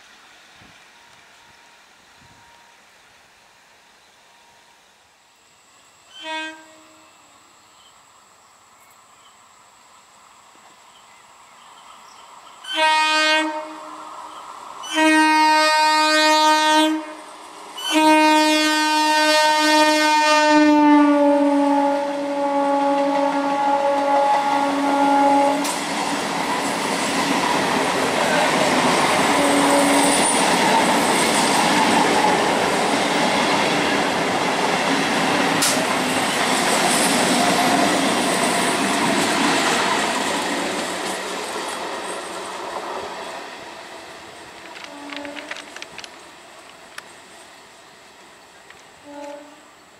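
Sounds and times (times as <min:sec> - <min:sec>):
train coaches rolling past: 0:00.0 - 0:49.9
train horn blasts: 0:06.1 - 0:07.3, 0:12.6 - 0:14.1, 0:14.8 - 0:25.8, 0:28.2 - 0:30.4, 0:44.8 - 0:45.6, 0:49.0 - 0:49.8.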